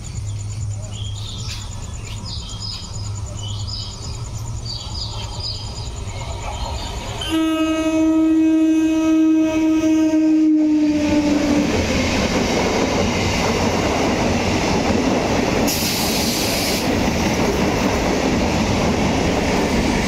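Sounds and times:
small bird chirps: 0.2s - 7.0s
train horn blast: 7.2s - 11.8s.

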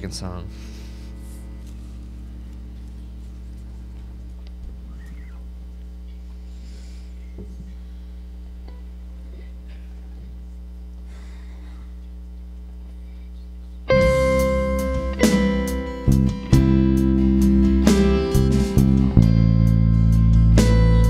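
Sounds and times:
worship band playing guitars: 0.0s - 5.5s, 13.9s - 21.0s
steady low hum: 0.0s - 21.0s.

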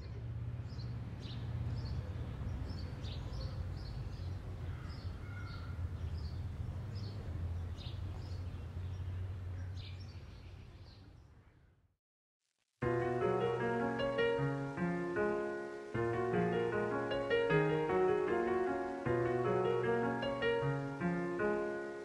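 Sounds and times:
small birds chirping: 0.0s - 11.7s.

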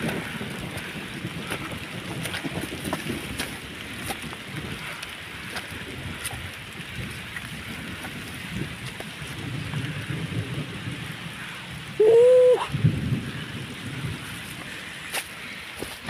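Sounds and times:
drizzling rain: 0.0s - 16.0s
wind rumbling on microphone: 0.0s - 16.0s.

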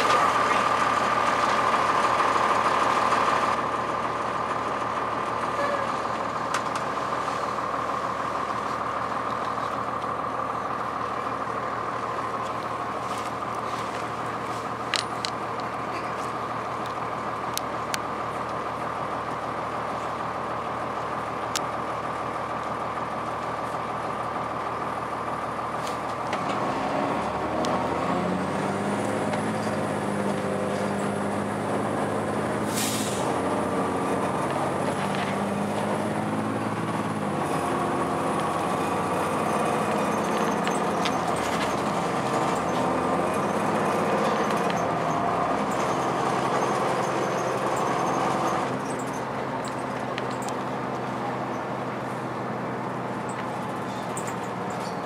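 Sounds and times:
bus diesel engine: 0.0s - 55.0s
air brake hiss: 32.7s - 33.3s.

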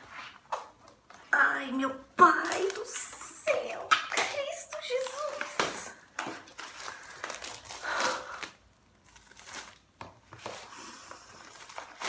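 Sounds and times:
packaging crinkling and tearing: 2.3s - 10.0s, 11.3s - 12.0s.

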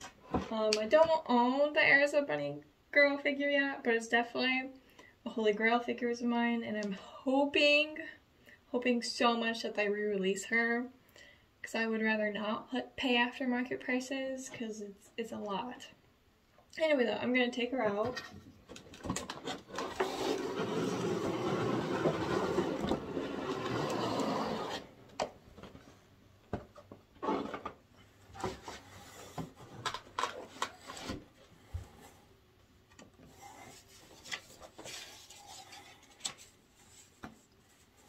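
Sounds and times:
plastic and cardboard knocks and crinkles: 18.0s - 24.3s
plastic scraping against cardboard: 19.1s - 25.0s, 27.2s - 27.8s, 28.4s - 32.2s, 33.2s - 38.0s.

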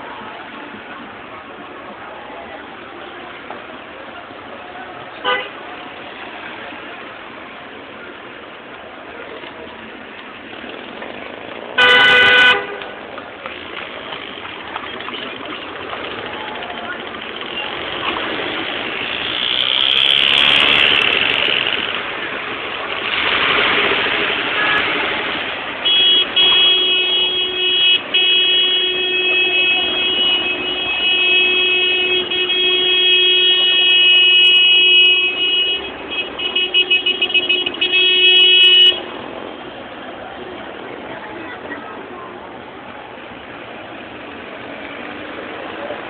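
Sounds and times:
street noise: 0.0s - 46.0s
car horn blast and toots: 5.2s - 5.6s, 11.8s - 12.9s, 25.8s - 39.1s.

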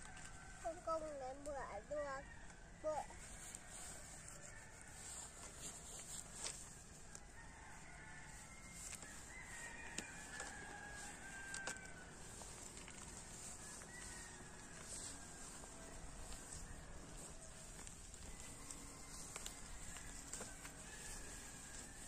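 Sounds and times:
rooster crowing: 2.1s - 22.0s
wood fire crackling: 9.0s - 22.0s.

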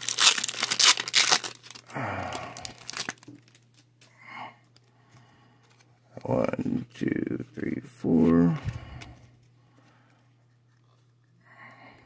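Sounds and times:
foil wrapper crinkling and tearing: 0.0s - 4.0s
cards rustling: 0.0s - 11.3s.

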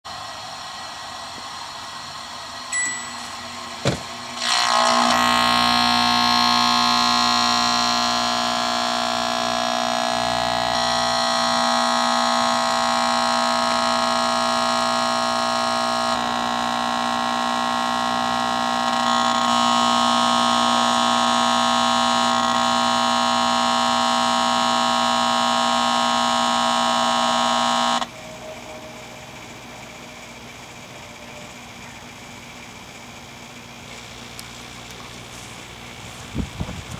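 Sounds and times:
shrill electrical buzz: 0.1s - 36.7s
microwave beep: 2.7s - 3.8s.

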